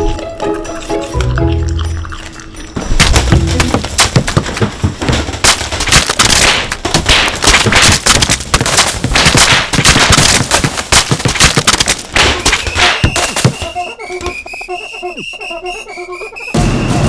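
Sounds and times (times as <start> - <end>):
toy balls bouncing on wood: 2.8 - 14.6.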